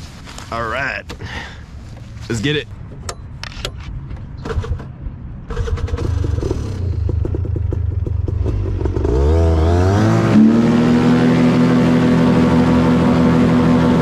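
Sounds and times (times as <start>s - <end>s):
paramotor engine and propeller: 5.5s - 14.0s.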